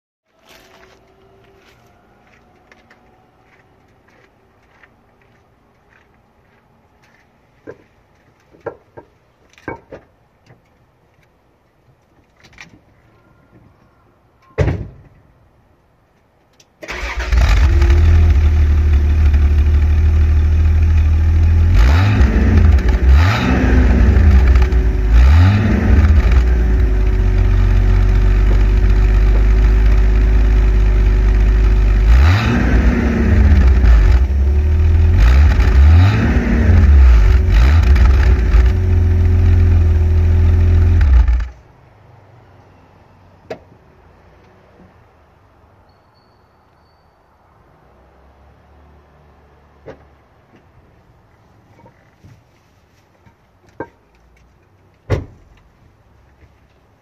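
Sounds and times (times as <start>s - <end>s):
car engine starting and idling: 16.8s - 41.6s.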